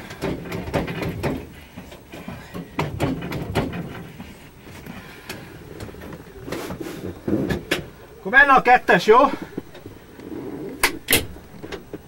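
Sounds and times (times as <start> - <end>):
knocks and rattles inside aircraft: 0.0 - 4.4.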